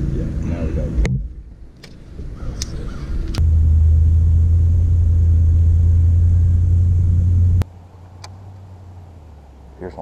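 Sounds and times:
loud low rumble: 0.2 - 7.6.

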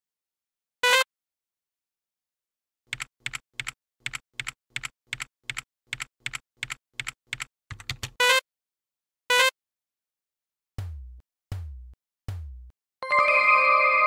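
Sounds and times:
keyboard keystrokes: 2.9 - 8.2.

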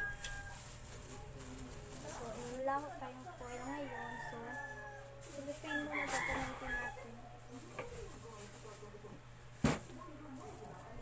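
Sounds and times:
rooster crowing: 0.0 - 0.7, 3.6 - 7.4
plastic gloves rustling: 0.0 - 11.0.

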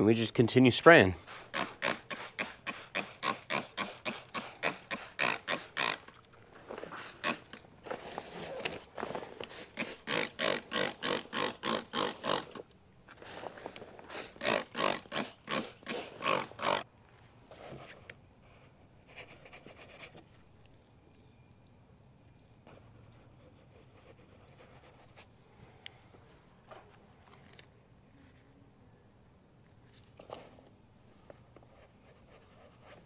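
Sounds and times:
spray bottle hissing sprays: 1.2 - 6.0, 9.5 - 11.5.

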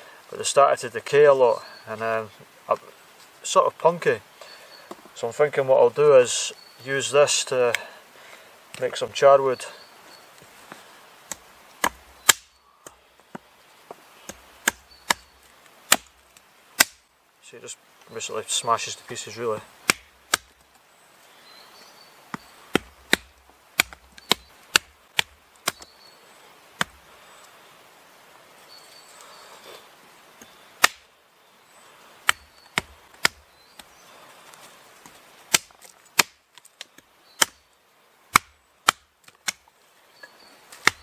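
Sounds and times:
hatchet chopping wood: 11.2 - 13.5, 14.2 - 15.3, 15.9 - 16.2, 16.8 - 17.0, 19.8 - 20.6, 22.3 - 25.9, 26.8 - 27.0, 30.8 - 31.1, 32.2 - 34.0, 35.5 - 36.4, 37.4 - 37.6, 38.3 - 39.6, 40.7 - 41.0.

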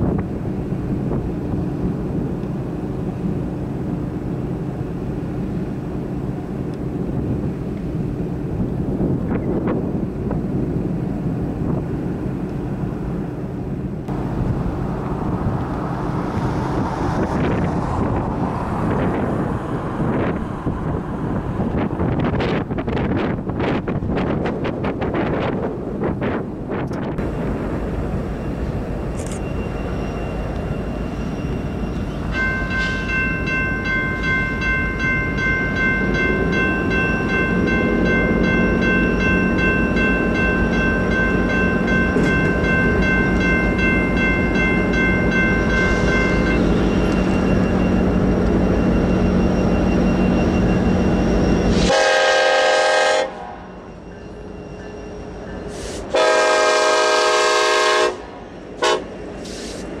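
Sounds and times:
freight train locomotives rumbling: 0.0 - 60.0
crossing warning bell ringing: 27.2 - 60.0
locomotive air horn blasts: 51.7 - 53.6, 55.7 - 59.2.

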